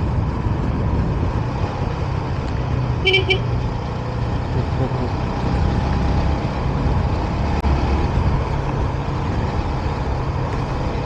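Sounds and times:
motorcycle engine hum: 0.0s - 11.0s
wind and road noise: 0.0s - 11.0s.

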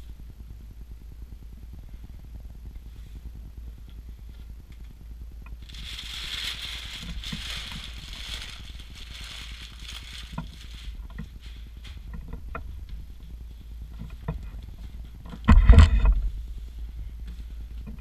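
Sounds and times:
steady low hum: 0.0s - 18.0s
plastic sheet crinkling: 5.6s - 12.2s.

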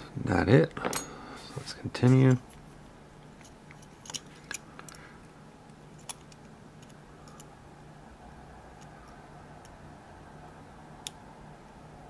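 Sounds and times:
lock pick ticking and scraping: 6.0s - 7.5s.

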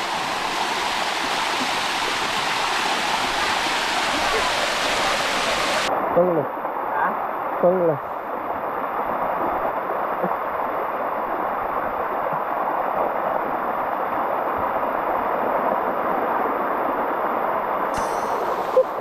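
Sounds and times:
waterfall rushing: 0.0s - 6.2s, 17.8s - 19.0s.

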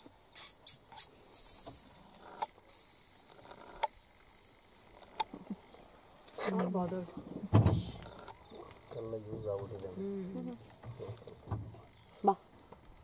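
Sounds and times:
high insect drone: 0.0s - 13.0s
short hiss: 0.3s - 4.1s.

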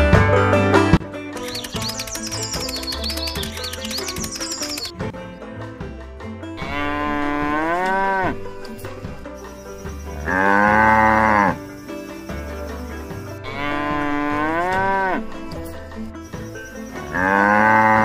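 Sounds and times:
background music: 0.0s - 18.0s
cattle mooing: 6.6s - 8.6s, 10.1s - 11.8s, 13.0s - 15.4s, 16.9s - 18.0s.

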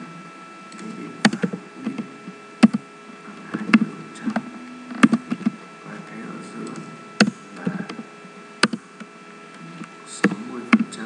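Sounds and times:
electrical hum: 0.0s - 11.0s
keyboard keystrokes: 8.6s - 8.8s.

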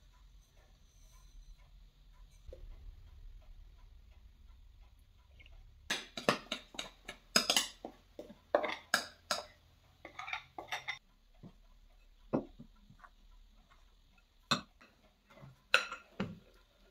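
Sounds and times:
metal utensil scraping glass jar: 8.5s - 11.0s.

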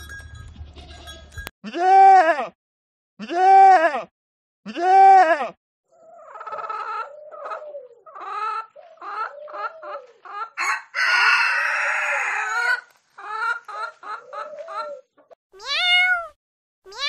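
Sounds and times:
chickens clucking: 6.0s - 15.4s
rooster crowing: 10.6s - 12.9s.

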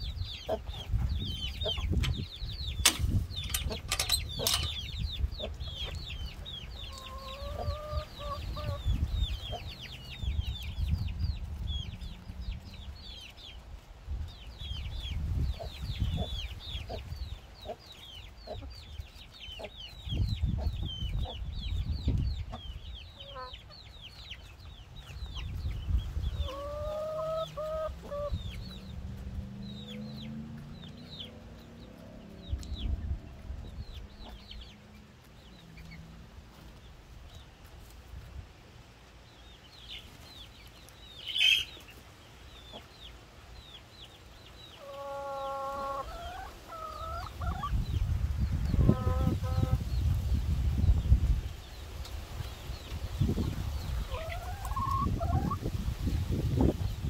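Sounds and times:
drawn-out low hen calls: 0.0s - 13.5s, 14.6s - 37.6s, 42.6s - 50.4s, 51.0s - 57.0s
hens clucking: 0.3s - 10.2s, 15.5s - 21.5s, 22.1s - 37.0s, 44.6s - 49.9s, 52.0s - 57.0s.

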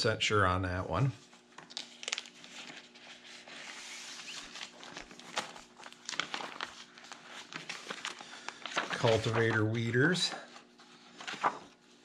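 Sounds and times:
faint steady hum: 0.0s - 12.0s
plastic sheet protectors crinkling: 1.6s - 11.9s.

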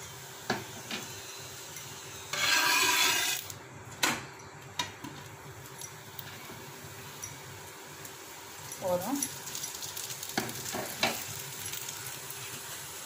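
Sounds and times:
spoon rubbing on hot pan: 1.0s - 3.5s.

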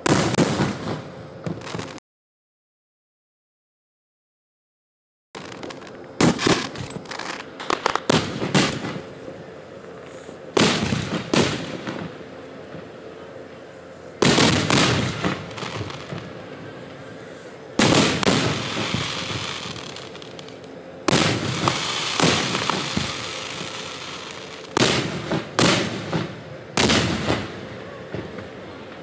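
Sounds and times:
crackle and rumble: 0.0s - 2.0s, 5.4s - 29.0s
firework shells bursting: 5.4s - 9.1s, 17.8s - 27.5s.

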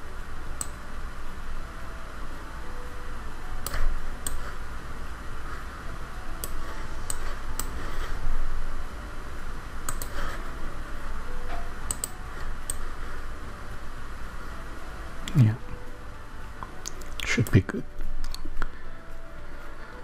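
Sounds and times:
steady hiss: 0.0s - 20.0s
computer mouse clicks: 3.6s - 4.5s, 6.4s - 7.8s, 9.9s - 10.3s, 11.9s - 12.8s.

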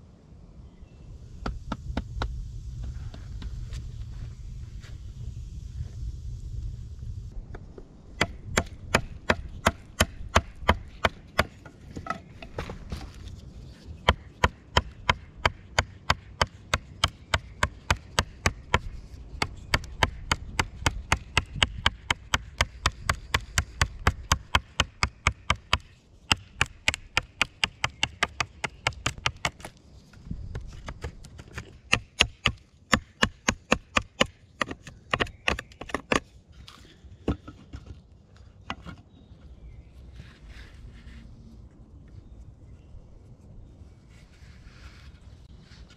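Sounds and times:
knife chopping wood: 30.7s - 36.3s.

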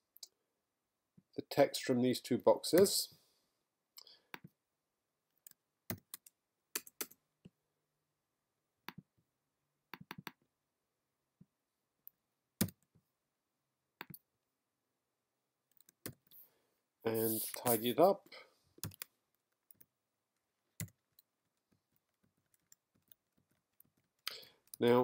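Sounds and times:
computer mouse clicks: 9.9s - 10.4s.

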